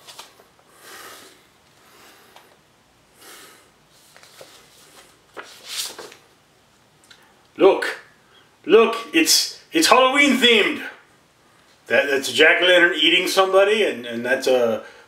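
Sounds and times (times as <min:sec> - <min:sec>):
paper rustling and sliding: 0:00.0 - 0:00.5, 0:03.9 - 0:06.3.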